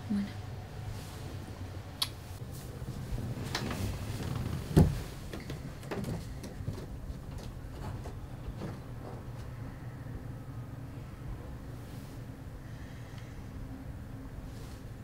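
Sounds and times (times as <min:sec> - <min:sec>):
dull thump: 0:04.7 - 0:06.8.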